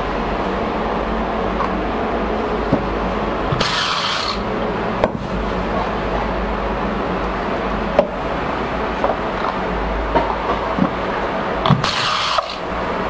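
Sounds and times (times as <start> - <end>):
steady mechanical rumble: 0.0 - 13.0
cap-screwing machine whirring: 3.5 - 4.5, 11.6 - 12.7.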